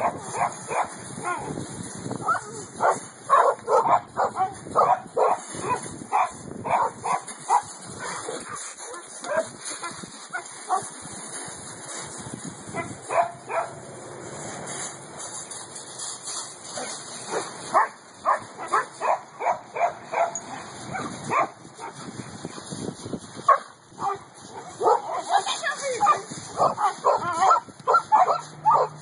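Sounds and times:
dog yipping and barking: 0:02.2 - 0:08.2, 0:12.8 - 0:13.8, 0:17.3 - 0:21.5, 0:23.5 - 0:29.0.

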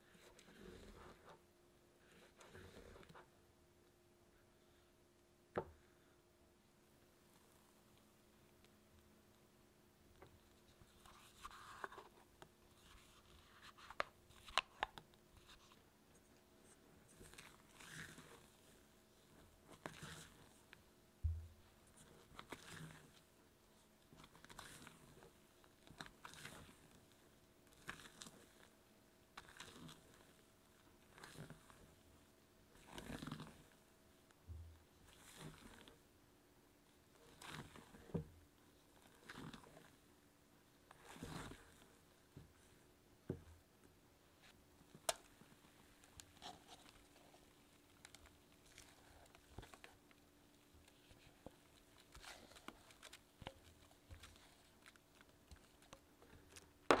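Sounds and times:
spatula working batter in steel bowl: 0:17.1 - 0:20.7, 0:22.0 - 0:23.3, 0:24.2 - 0:28.7, 0:35.0 - 0:36.0
dull low thump: 0:21.3 - 0:21.6.

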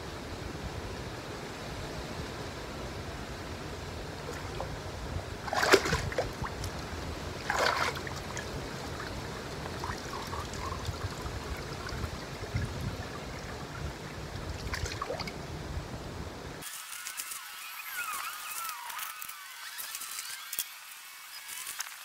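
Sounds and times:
steady low rumble: 0:03.1 - 0:16.6
water sloshing and splashing: 0:04.2 - 0:15.4.

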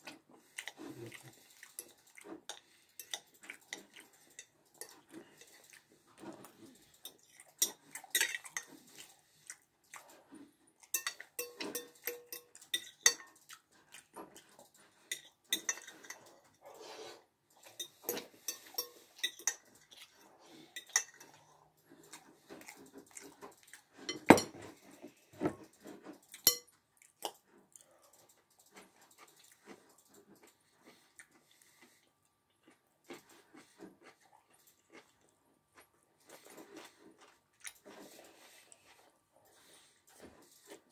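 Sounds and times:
mouth sounds of eating: 0:00.0 - 0:11.3
spoon scraping glass bowl: 0:10.9 - 0:13.3, 0:15.1 - 0:16.3, 0:17.6 - 0:20.2, 0:20.8 - 0:21.4, 0:26.4 - 0:26.6.

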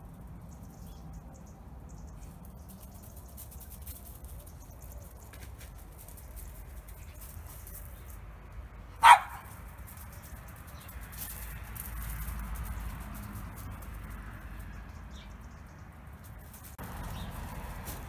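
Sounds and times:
dog barking: 0:09.0 - 0:09.5.

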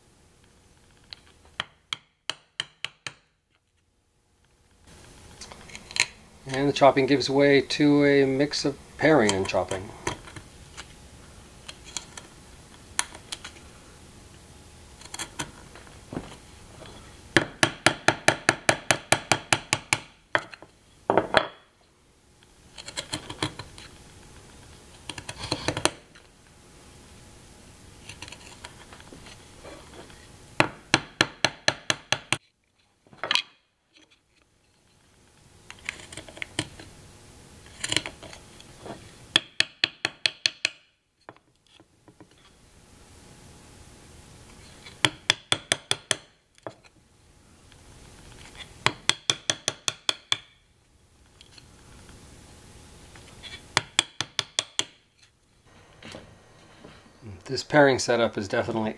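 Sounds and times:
mallet tapping a chisel: 0:01.6 - 0:03.2, 0:17.4 - 0:21.6, 0:30.6 - 0:32.4, 0:39.4 - 0:40.9, 0:45.0 - 0:46.3, 0:48.8 - 0:50.6, 0:53.8 - 0:55.0
chisel paring scrape: 0:09.2 - 0:11.0, 0:11.6 - 0:12.3, 0:15.0 - 0:15.6, 0:22.7 - 0:23.9, 0:25.0 - 0:26.0, 0:28.0 - 0:30.3, 0:35.7 - 0:36.9, 0:37.6 - 0:39.0.

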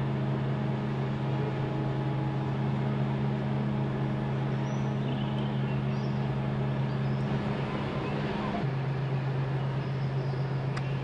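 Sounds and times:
heavy machinery humming: 0:00.0 - 0:11.0.

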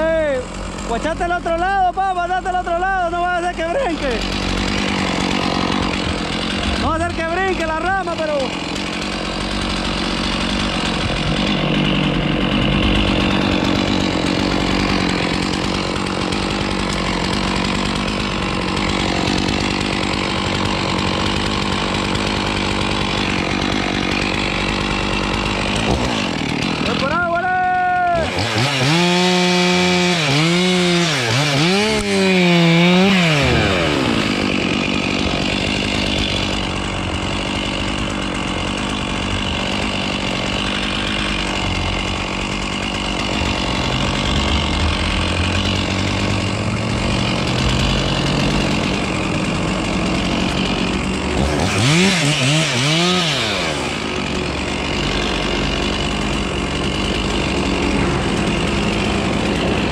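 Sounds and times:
chainsaw revving and cutting wood: 0:00.0 - 0:59.9.

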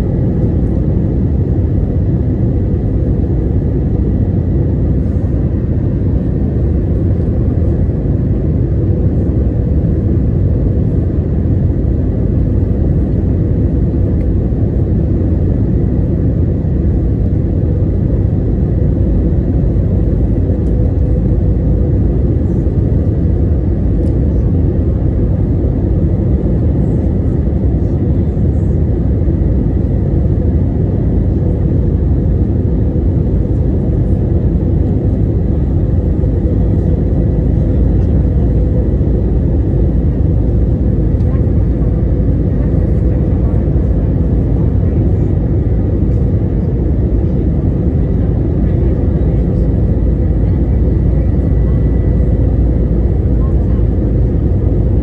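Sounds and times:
jet engine and airflow rumble: 0:00.0 - 0:55.0.

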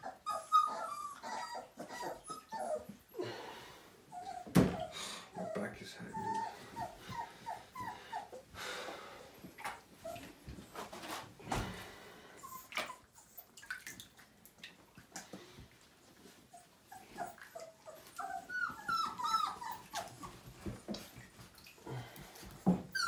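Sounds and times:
puppies whimpering: 0:00.0 - 0:03.3, 0:04.1 - 0:08.6, 0:16.1 - 0:23.0
knocks and rustles of handling: 0:09.4 - 0:11.9, 0:19.9 - 0:23.0.

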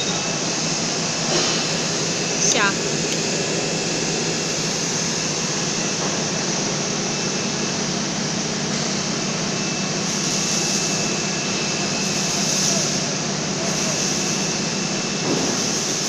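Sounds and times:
welding hiss: 0:10.0 - 0:16.0.

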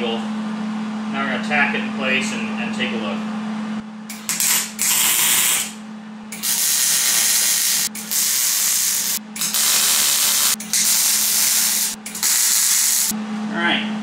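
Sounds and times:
steady low hum: 0:00.0 - 0:14.0
welding arc crackling hiss: 0:04.1 - 0:05.8, 0:06.4 - 0:13.2.

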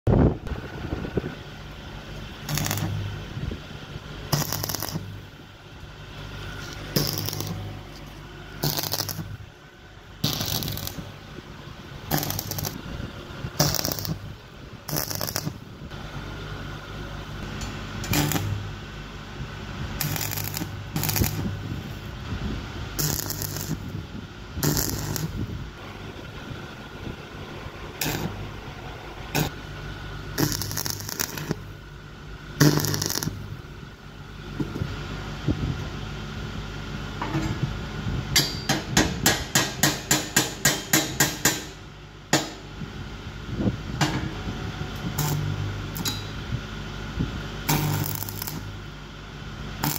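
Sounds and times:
steady low hum: 0:00.1 - 0:49.9
welding arc crackling: 0:02.4 - 0:03.3, 0:04.3 - 0:05.4, 0:06.6 - 0:07.8, 0:08.6 - 0:09.5, 0:10.2 - 0:11.2, 0:12.1 - 0:12.9, 0:13.5 - 0:15.7, 0:18.0 - 0:18.8, 0:19.9 - 0:22.1, 0:22.9 - 0:24.0, 0:24.6 - 0:28.6, 0:29.3 - 0:29.6, 0:30.3 - 0:31.7, 0:32.6 - 0:33.6, 0:45.2 - 0:46.2, 0:47.6 - 0:48.9.

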